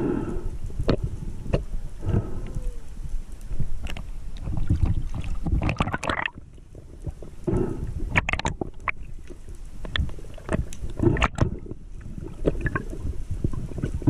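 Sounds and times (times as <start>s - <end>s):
muffled underwater rumble: 0.0s - 14.0s
underwater clicks and knocks: 3.8s - 6.4s, 8.1s - 14.0s.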